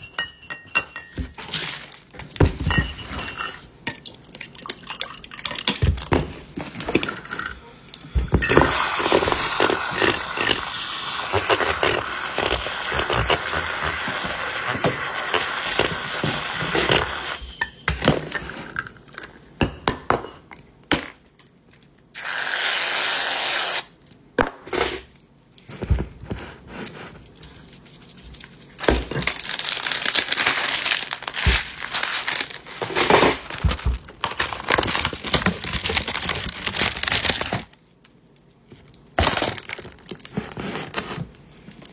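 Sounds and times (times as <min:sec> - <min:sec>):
glass knocks and clinks: 0:00.0 - 0:01.4, 0:02.4 - 0:03.4
creamer squeezed from bottle: 0:22.1 - 0:24.0.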